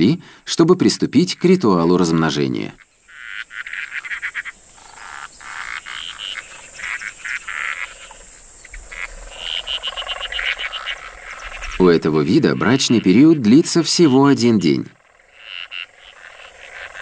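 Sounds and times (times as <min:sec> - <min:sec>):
frogs calling: 0:00.0 - 0:17.0.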